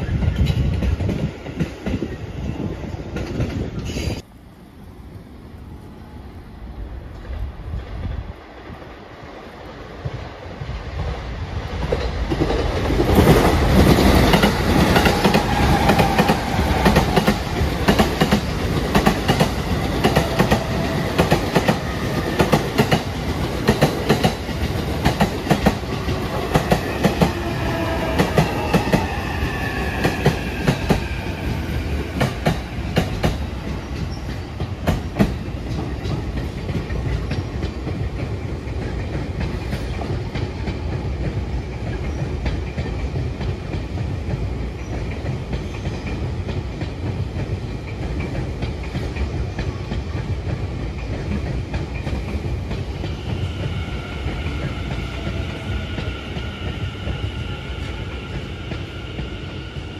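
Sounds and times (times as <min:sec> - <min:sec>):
train rumble: 0:00.0 - 0:59.9
train wheels clacking over rail joints: 0:11.8 - 0:29.2, 0:31.9 - 0:57.2.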